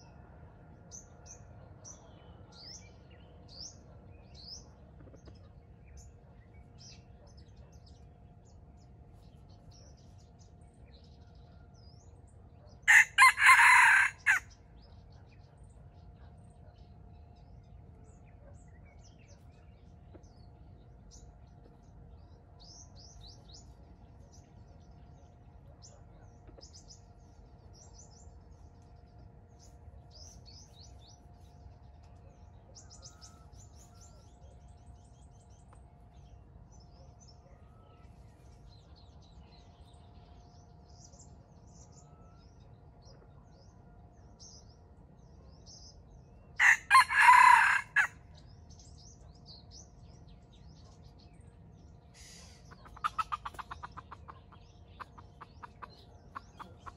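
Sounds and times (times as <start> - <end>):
low steady hum: 0.0 - 13.4, 14.1 - 47.2
songbirds chirping: 0.0 - 56.9
rooster crowing: 12.9 - 14.6, 46.6 - 48.2.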